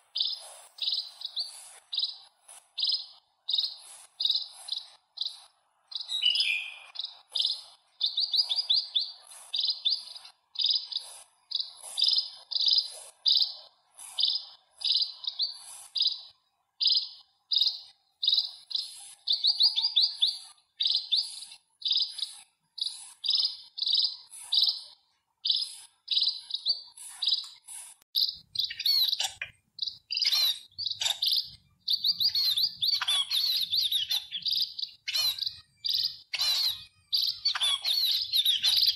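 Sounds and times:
sparrow chirping: 0:00.0 - 0:38.9.

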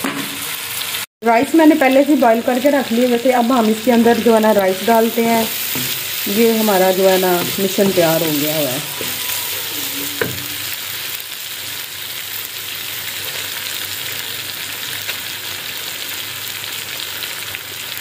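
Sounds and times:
stir-fry sizzling in a wok: 0:00.0 - 0:18.0
wooden spatula stirring: 0:05.2 - 0:10.8.

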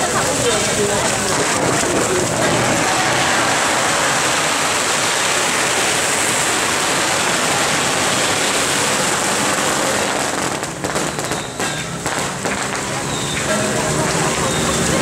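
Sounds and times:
firecrackers crackling: 0:00.0 - 0:15.0.

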